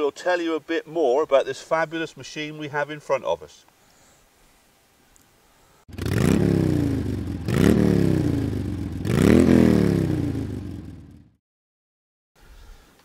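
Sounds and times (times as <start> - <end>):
motorcycle engine revving: 5.9 - 11.4.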